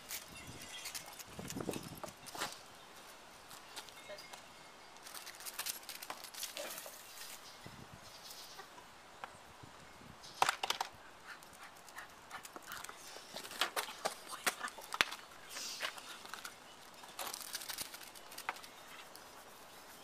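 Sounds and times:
dog footsteps clicking: 11.3 - 19.3.

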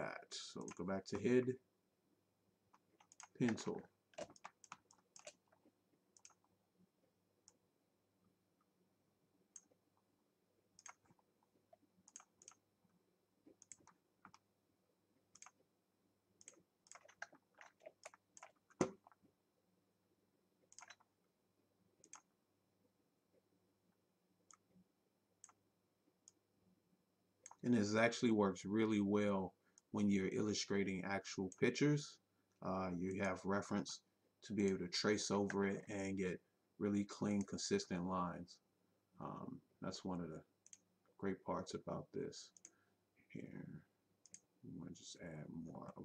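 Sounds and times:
computer input clicks: 20.7 - 21.0.

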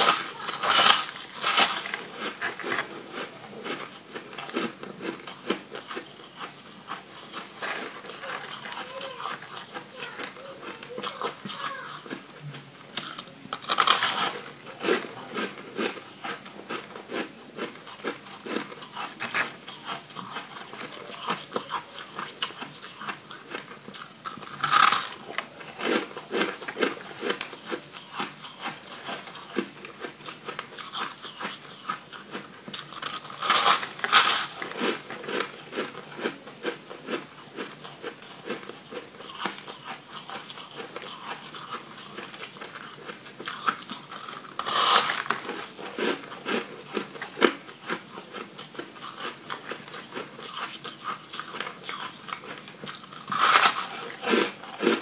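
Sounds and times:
crunching and chewing ice: 0.0 - 55.0.

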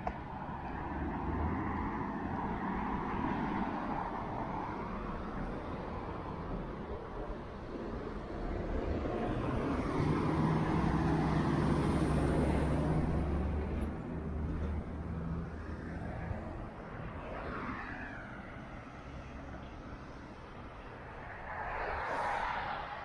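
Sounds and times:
vehicle passing by: 9.0 - 19.4, 21.2 - 23.0.

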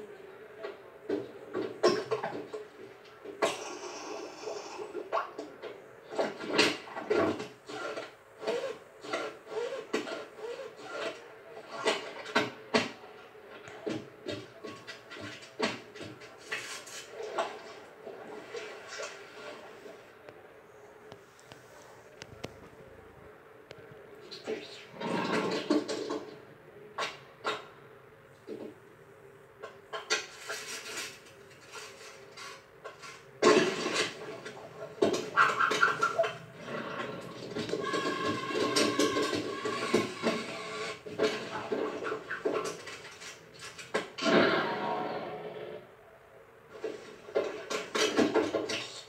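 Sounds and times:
knocks rubs and clatter: 30.0 - 44.2.

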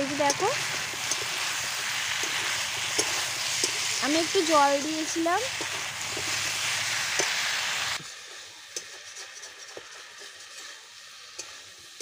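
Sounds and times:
food sizzling in a pan: 0.0 - 12.0
metal spatula scraping pan: 8.2 - 12.0.

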